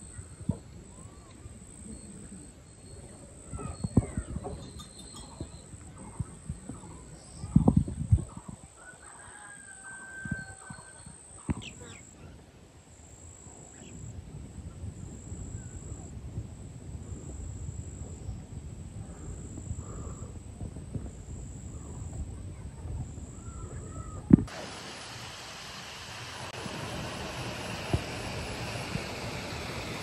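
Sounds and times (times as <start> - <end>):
faint chirps: 0.0 - 16.2, 17.0 - 20.4, 21.0 - 24.3
steady rushing hiss: 11.4 - 30.0.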